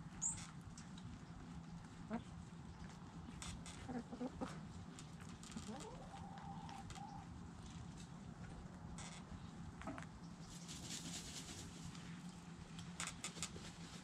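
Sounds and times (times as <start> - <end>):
chickens scratching in dirt: 0.1 - 14.0
chicken clucking: 1.9 - 2.8, 3.8 - 4.8, 5.6 - 7.3, 9.8 - 11.7.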